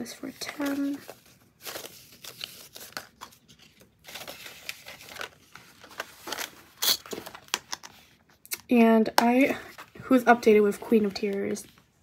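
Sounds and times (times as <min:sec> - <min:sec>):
paper banknotes rustling: 0:00.2 - 0:07.5
plastic binder pocket crinkling: 0:00.3 - 0:08.1.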